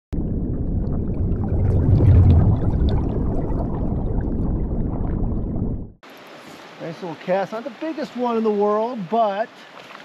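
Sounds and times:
underwater bubbling: 0:00.2 - 0:06.0
rushing water: 0:01.1 - 0:04.4, 0:06.0 - 0:10.0.

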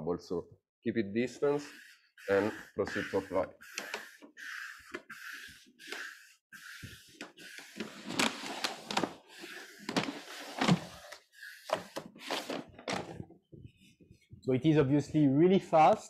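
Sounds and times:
squeegee scraping vinyl film: 0:01.4 - 0:13.0.

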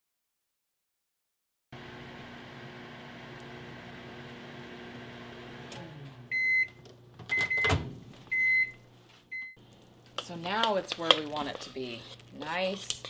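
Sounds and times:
microwave oven humming: 0:01.8 - 0:10.1
microwave short high beeps: 0:06.3 - 0:09.6.

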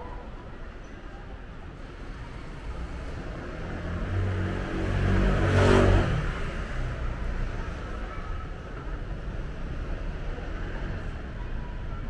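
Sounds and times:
vehicle driving past: 0:02.7 - 0:07.5.

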